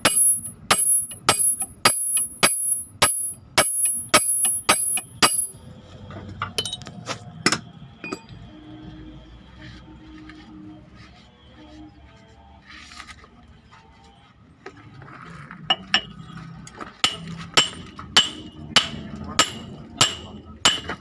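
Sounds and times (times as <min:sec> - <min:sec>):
hammer striking steel drift: 0:00.0 - 0:05.6, 0:17.0 - 0:21.0.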